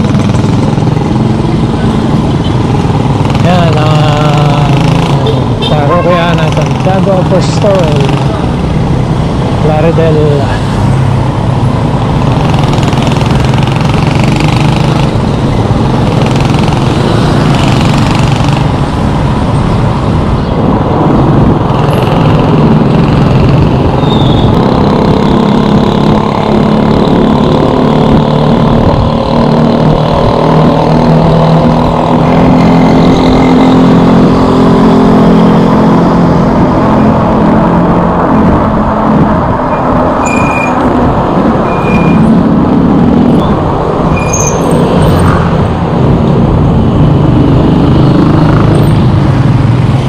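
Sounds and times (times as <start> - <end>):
motorcycle engines running: 0.0 - 50.0
wind on microphone: 18.7 - 50.0.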